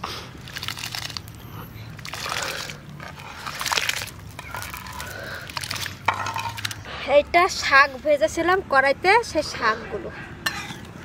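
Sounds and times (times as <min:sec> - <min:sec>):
wet grains splashing into water: 0:02.0 - 0:06.8.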